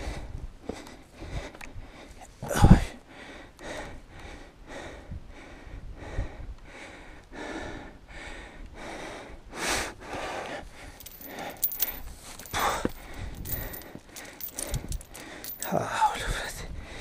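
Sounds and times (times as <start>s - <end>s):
person panting: 3.1s - 15.7s.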